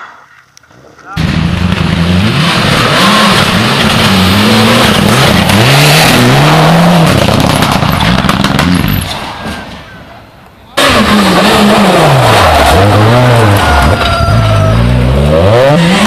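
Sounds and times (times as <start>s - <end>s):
rally car engine revving: 1.2s - 9.2s, 10.8s - 16.0s.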